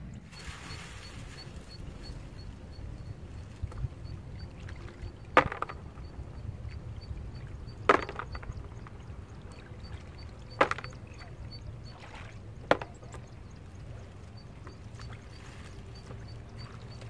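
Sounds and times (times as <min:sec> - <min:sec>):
steady low rumble: 0:00.0 - 0:17.0
sharp knocks: 0:05.4 - 0:05.8, 0:07.9 - 0:09.0, 0:10.5 - 0:11.2.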